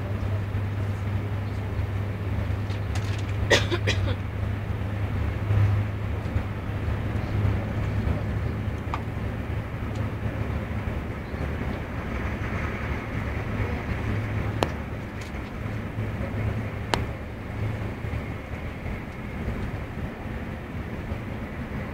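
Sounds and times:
train rumbling: 0:00.0 - 0:21.9
low hum: 0:09.2 - 0:21.9.

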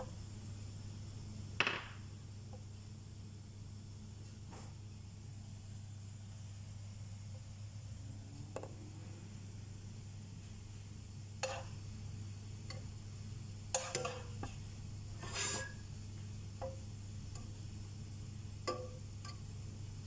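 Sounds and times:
steady low hum: 0:00.0 - 0:20.0
spatula scraping frying pan: 0:11.4 - 0:11.8, 0:13.7 - 0:15.8.

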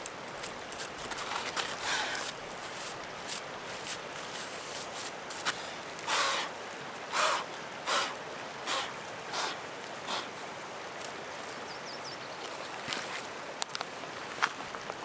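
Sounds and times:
person blowing puffs of breath: 0:05.5 - 0:06.5, 0:07.1 - 0:10.3.

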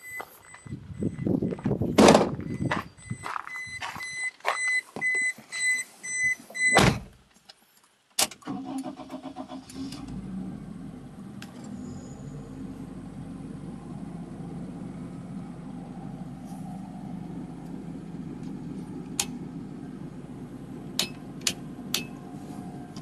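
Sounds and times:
car warning chime beeping: 0:00.0 - 0:01.7, 0:02.5 - 0:06.8
car door shutting: 0:01.9 - 0:02.4, 0:06.5 - 0:07.2
car engine starting and idling: 0:08.3 - 0:23.0.

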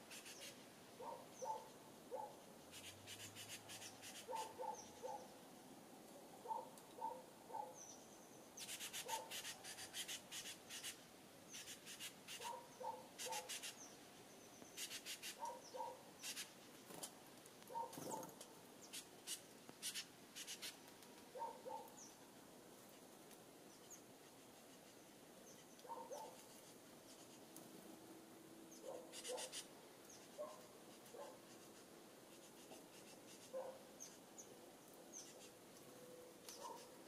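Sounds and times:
short animal calls: 0:28.9 - 0:29.7.

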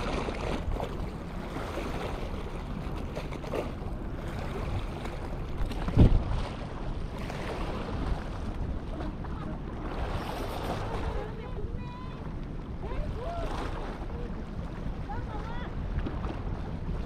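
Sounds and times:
small waves sloshing over rocks: 0:00.0 - 0:17.0
wind on microphone: 0:03.5 - 0:17.0.

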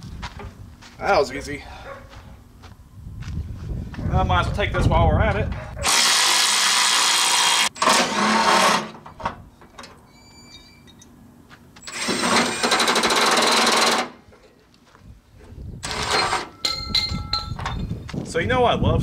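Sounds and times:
impact driver running bolts: 0:05.9 - 0:09.0, 0:11.8 - 0:14.2.

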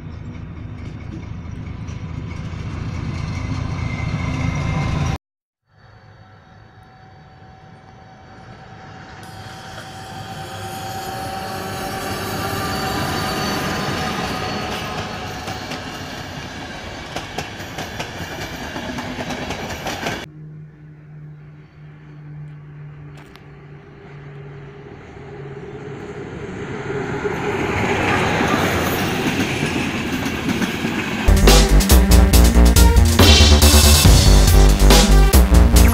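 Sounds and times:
wheels clicking over rail joints: 0:00.0 - 0:04.0
locomotive humming: 0:00.0 - 0:05.2, 0:05.9 - 0:35.9
passenger train passing: 0:00.0 - 0:05.2, 0:05.8 - 0:35.9
distant train approaching: 0:00.0 - 0:35.9.

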